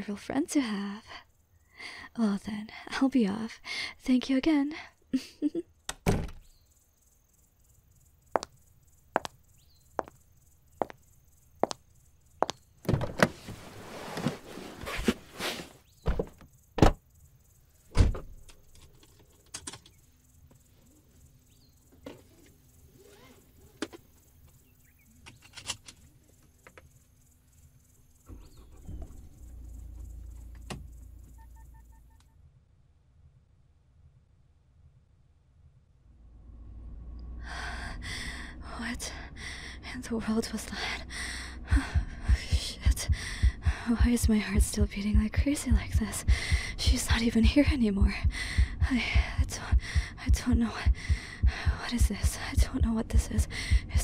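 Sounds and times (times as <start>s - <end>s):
door opening and closing: 5.9s - 6.5s, 12.8s - 13.6s, 16.0s - 17.0s, 17.9s - 18.6s, 28.2s - 29.6s
low rumble: 36.0s - 54.0s.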